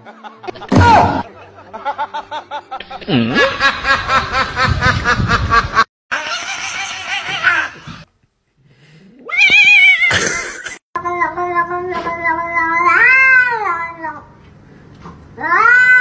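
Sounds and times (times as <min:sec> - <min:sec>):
human laughter in bursts: 0:00.0 - 0:08.0.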